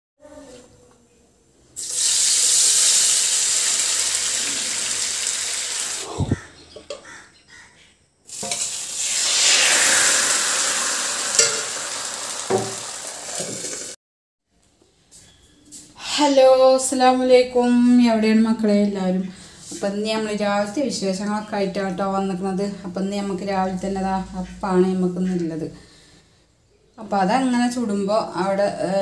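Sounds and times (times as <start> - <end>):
food sizzling in a hot pan: 1.8 - 6.1, 8.3 - 14.0.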